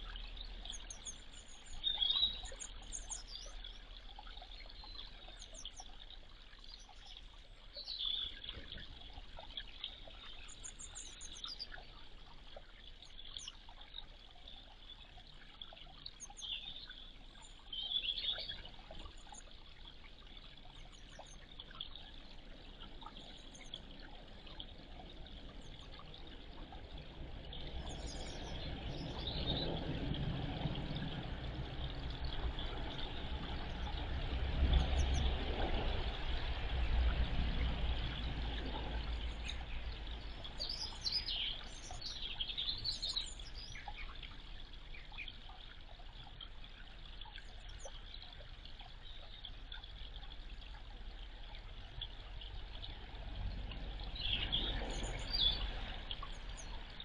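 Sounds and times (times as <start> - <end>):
small birds chirping: 0.0 - 26.2, 27.6 - 30.0, 38.6 - 50.9, 54.0 - 57.0
low rumble: 26.6 - 43.7.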